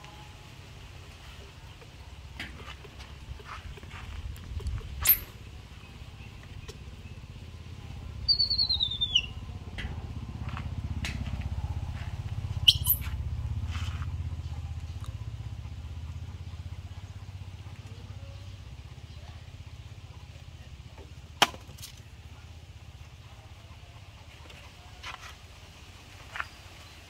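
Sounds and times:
vehicle engine rumble passing: 0.0s - 21.4s
high falling chirp: 5.0s - 5.3s, 8.2s - 9.4s, 12.6s - 13.1s.

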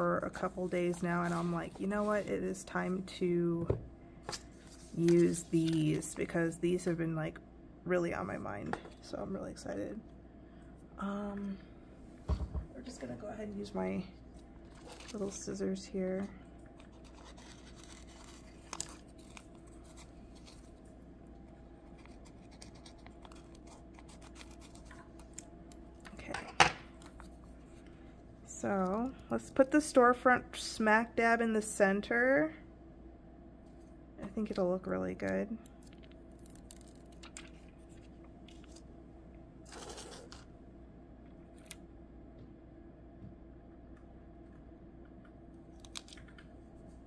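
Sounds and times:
low steady hum: 0.0s - 47.0s
plastic film crinkling: 16.8s - 20.8s, 35.8s - 38.8s.

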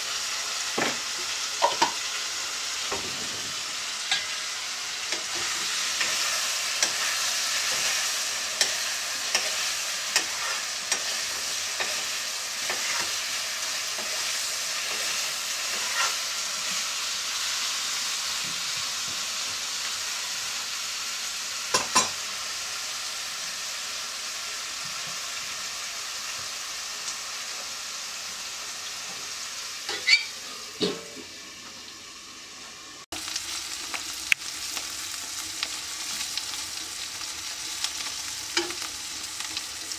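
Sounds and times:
vegetables sizzling in oil: 0.0s - 39.9s
metal spatula scraping a wok: 2.9s - 12.0s, 12.6s - 13.2s, 13.8s - 16.8s, 29.9s - 31.1s.

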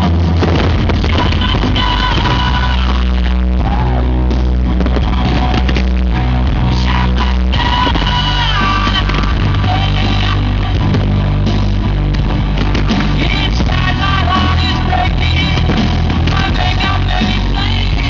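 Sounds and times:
bass line: 0.0s - 18.0s
drums: 0.0s - 18.0s
person singing: 0.8s - 4.1s, 5.1s - 11.0s, 13.0s - 18.0s.

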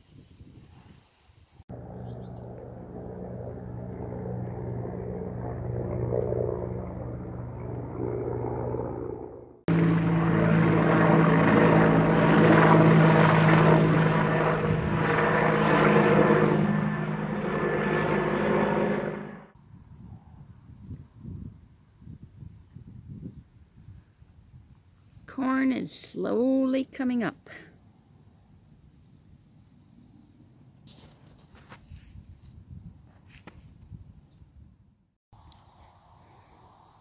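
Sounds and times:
helicopter rotor drone: 1.7s - 19.5s.

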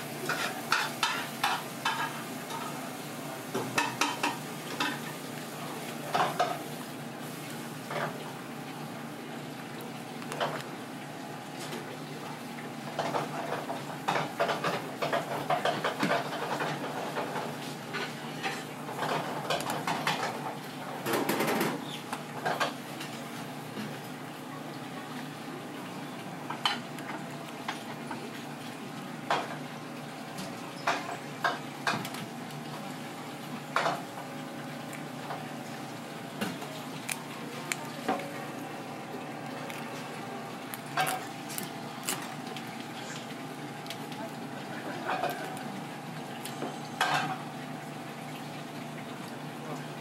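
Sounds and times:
kitchen hum and hiss: 0.0s - 50.0s.

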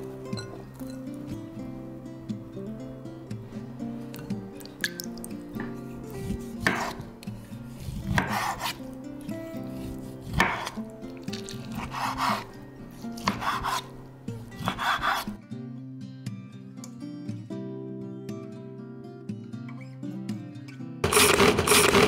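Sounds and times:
soft acoustic guitar music: 0.0s - 21.0s
knife slicing on wooden board: 6.2s - 13.9s, 14.6s - 15.4s.

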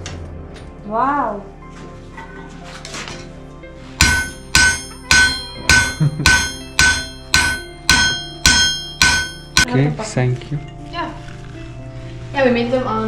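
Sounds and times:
hammer striking metal: 4.0s - 9.7s.

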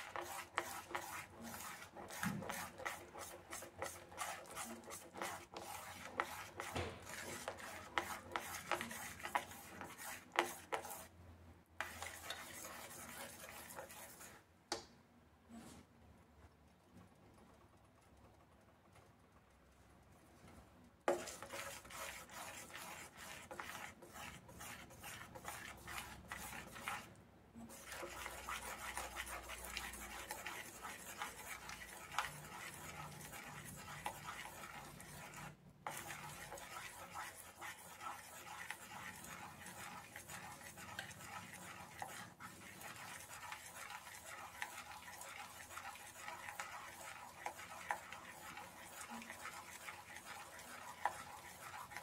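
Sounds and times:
metal spoon scraping a metal pot: 21.1s - 27.1s, 27.7s - 52.0s.

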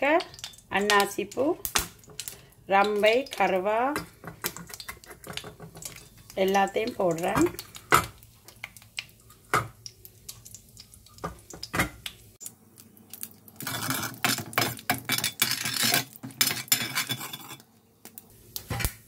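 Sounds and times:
metal utensil scraping a pan: 13.6s - 17.7s.

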